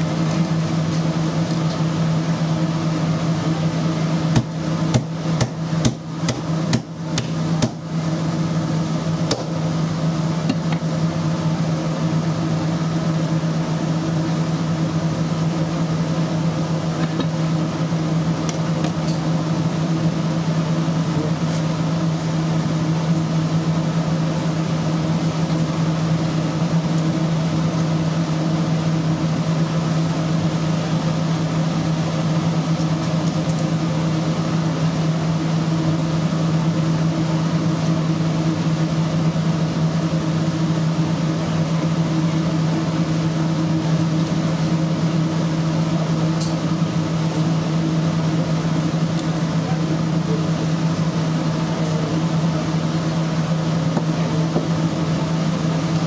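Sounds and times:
kitchen machinery hum: 0.0 - 56.0.

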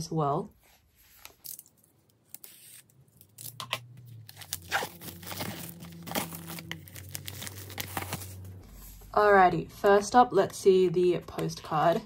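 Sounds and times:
plastic wrap crinkling and ripping: 1.2 - 8.6.

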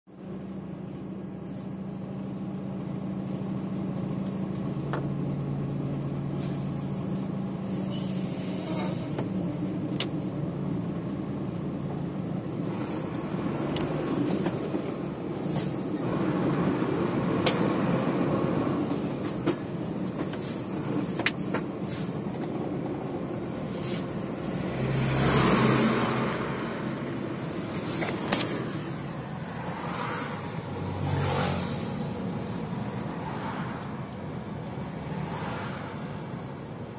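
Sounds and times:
heavy vehicle engine idling: 0.1 - 24.7, 26.2 - 30.8.

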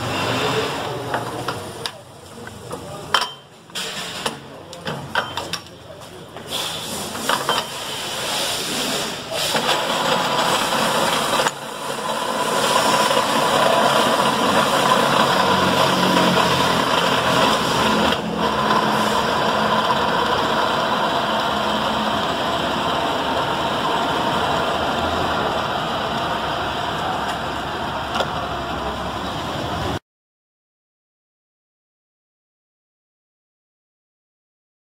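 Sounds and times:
pillar drill whirring: 9.5 - 28.8.

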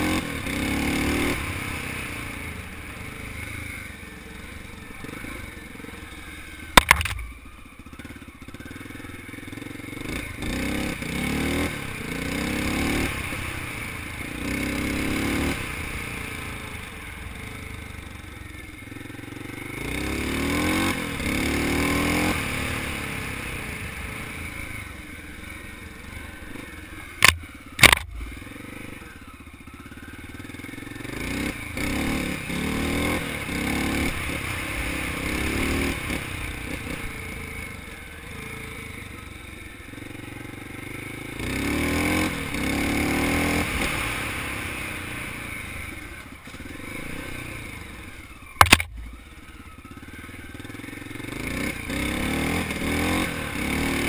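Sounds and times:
dirt bike engine revving: 0.0 - 8.8, 9.4 - 17.6, 18.9 - 54.0
sharp knock: 6.8 - 7.3.

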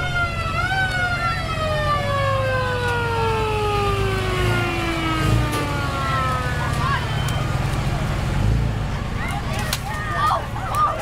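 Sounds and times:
siren falling wail: 0.0 - 8.1
low engine rumble: 0.0 - 11.0.

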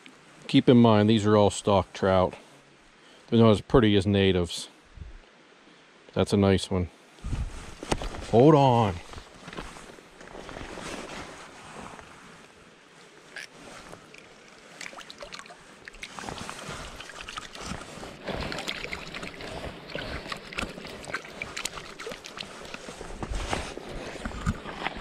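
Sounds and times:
stream trickling: 13.2 - 25.0
hands splashing water: 14.0 - 23.2.

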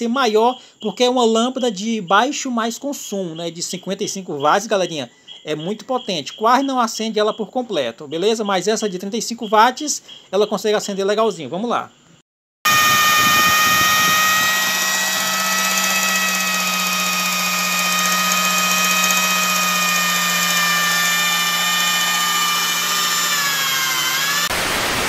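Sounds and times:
generator whine: 12.7 - 25.0.

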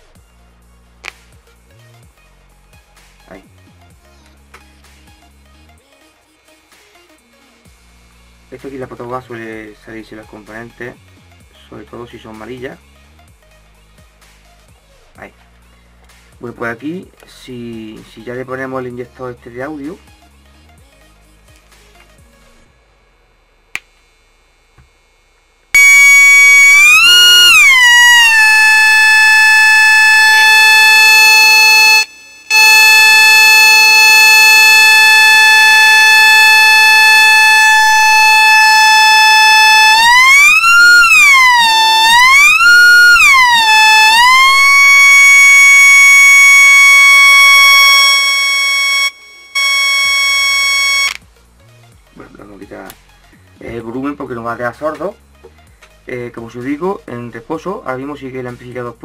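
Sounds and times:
electronic test tone: 25.8 - 51.2.

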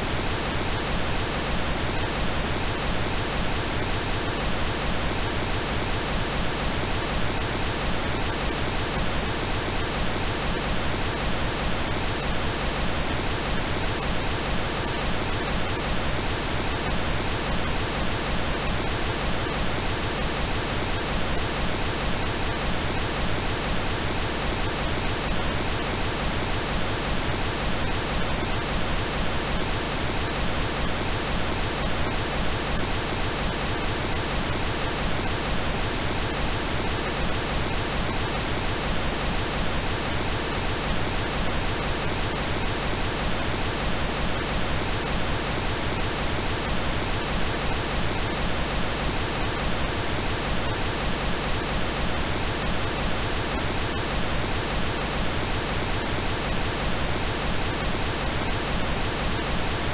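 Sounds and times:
steady pink noise hiss: 0.0 - 59.9.

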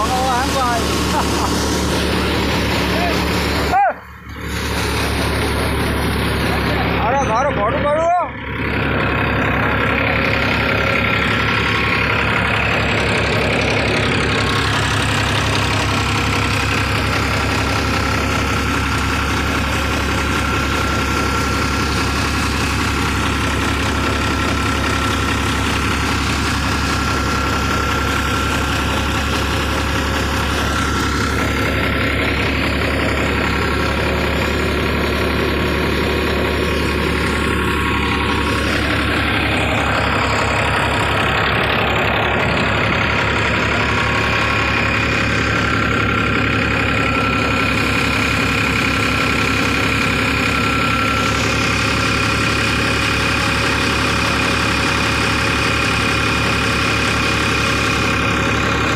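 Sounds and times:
mechanical rush: 0.0 - 53.6
tractor diesel engine running: 0.0 - 58.9.

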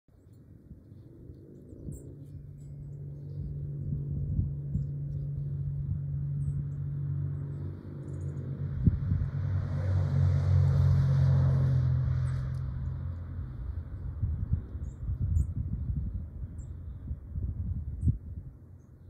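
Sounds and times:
pickup truck driving past: 5.9 - 14.2.

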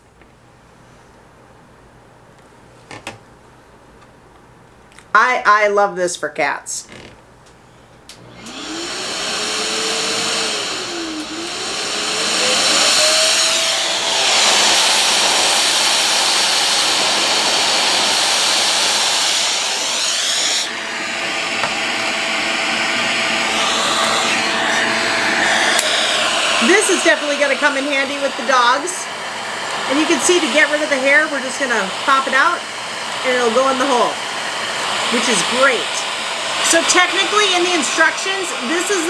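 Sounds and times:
vacuum motor whine: 8.1 - 39.0
air rushing through hose: 9.5 - 28.9.

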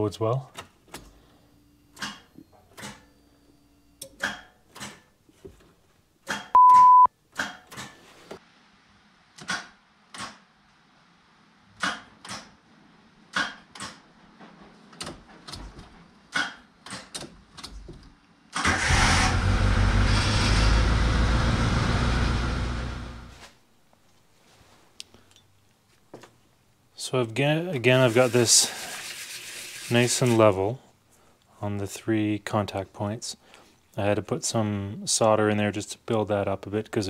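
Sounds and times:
steady beep: 6.6 - 7.1
car engine starting and running: 18.6 - 23.4.

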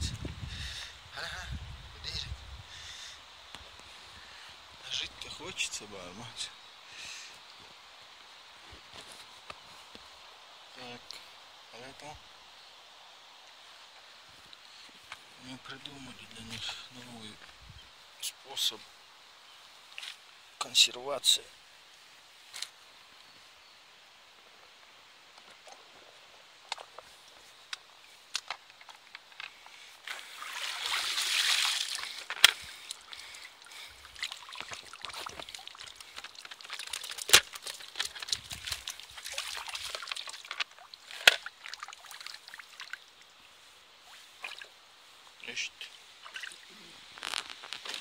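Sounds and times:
water pouring and sloshing: 30.0 - 43.3, 44.0 - 44.8, 46.2 - 47.4.

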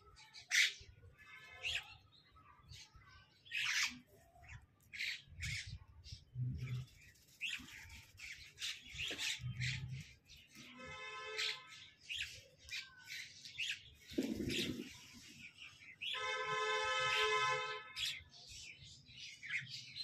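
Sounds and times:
parrot squawking and chirping: 3.5 - 4.1.

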